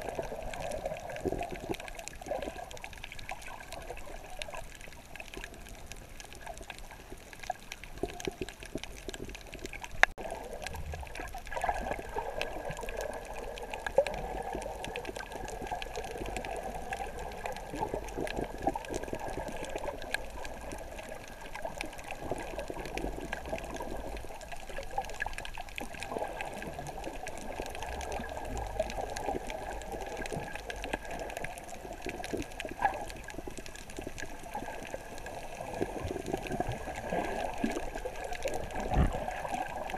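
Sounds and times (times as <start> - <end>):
small crackles and clicks: 0.0 - 39.9
underwater sloshing and gurgling: 0.0 - 39.9.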